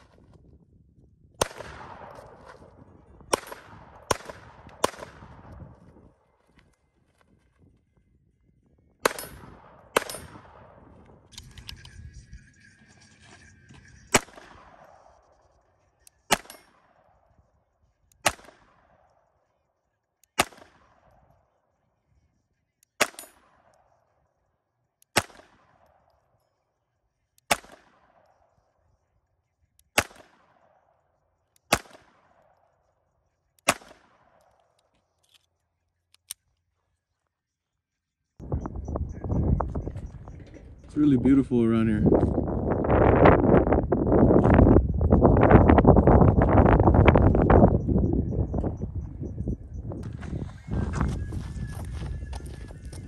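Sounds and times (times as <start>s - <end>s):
pistol shots: 1.4s - 5.9s, 9.0s - 11.3s, 14.1s - 15.2s, 16.2s - 17.3s, 18.2s - 19.2s, 20.3s - 21.2s, 22.9s - 23.8s, 25.1s - 26.1s, 27.4s - 28.4s, 29.9s - 30.9s, 31.7s - 32.6s, 33.6s - 34.7s.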